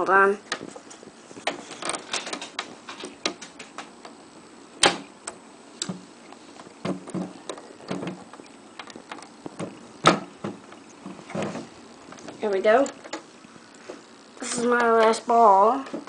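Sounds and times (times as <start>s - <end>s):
sharp plastic snap: 4.8s - 6.0s.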